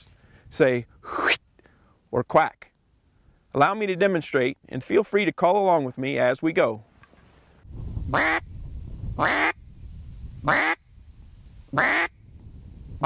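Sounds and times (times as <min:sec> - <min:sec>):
duck call quacks: 0:08.2 - 0:08.4, 0:09.2 - 0:09.6, 0:10.5 - 0:10.8, 0:11.8 - 0:12.1.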